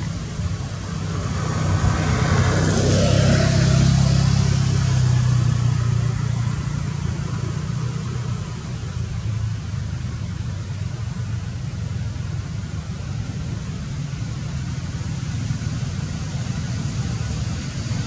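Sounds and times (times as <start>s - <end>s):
vehicle driving past: 0.0s - 9.0s.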